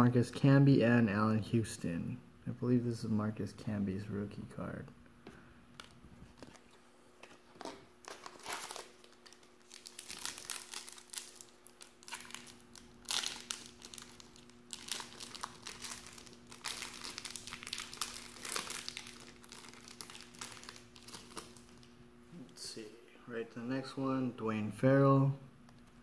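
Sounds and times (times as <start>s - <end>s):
foil wrapper crinkling: 7.5s - 21.9s.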